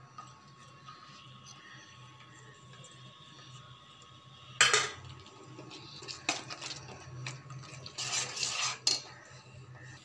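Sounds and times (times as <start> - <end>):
spatula stirring thick paste: 5.2 - 10.0
spatula scraping pan: 5.4 - 9.9.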